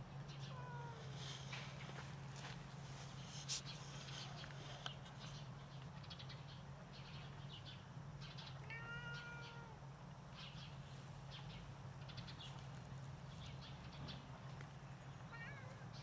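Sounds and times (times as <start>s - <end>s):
steady low hum: 0.0s - 16.0s
cat meowing: 8.6s - 9.8s, 15.3s - 16.0s.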